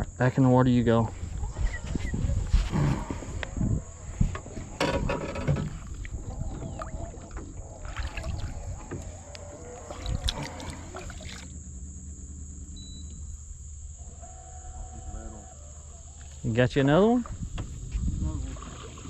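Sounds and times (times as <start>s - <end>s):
insects buzzing: 0.0s - 19.0s
fish splashing into water: 6.0s - 9.0s, 9.8s - 11.5s.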